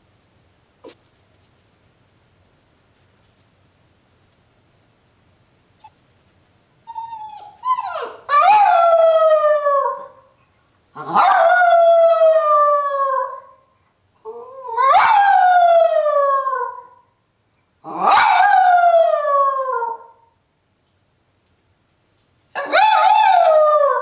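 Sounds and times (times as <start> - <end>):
dog howling: 22.6 - 24.0.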